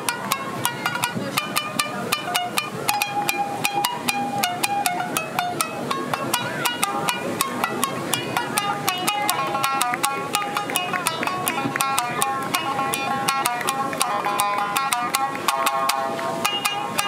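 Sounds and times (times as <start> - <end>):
shamisen played with a plectrum: 0.0 - 17.0.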